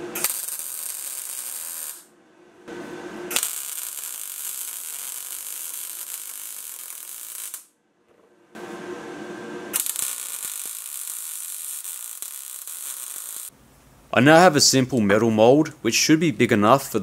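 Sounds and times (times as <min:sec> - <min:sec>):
welder arc crackling: 0:00.0 - 0:02.1, 0:03.3 - 0:07.7, 0:09.7 - 0:13.5.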